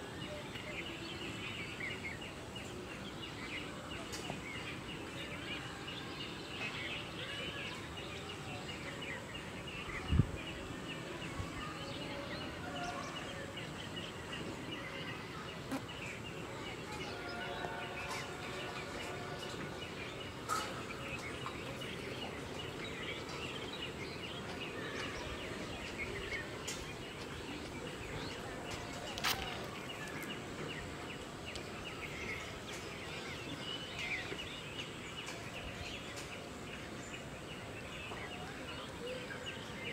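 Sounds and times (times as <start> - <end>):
birds chirping: 0.0 - 39.9
steady background noise: 0.0 - 39.9.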